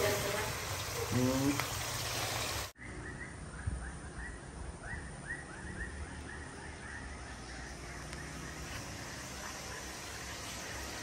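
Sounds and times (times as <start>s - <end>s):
oil sizzling in a wok: 0.0s - 2.8s, 8.6s - 11.0s.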